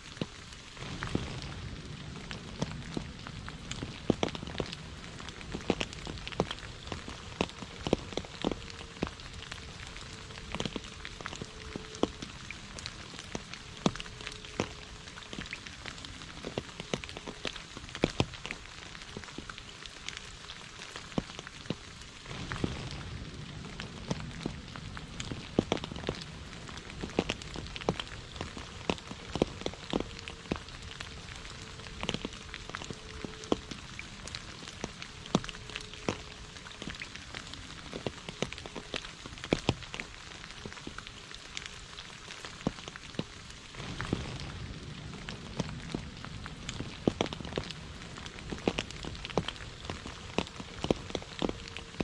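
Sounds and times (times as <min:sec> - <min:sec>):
steady hiss of rain: 0:00.0 - 0:52.0.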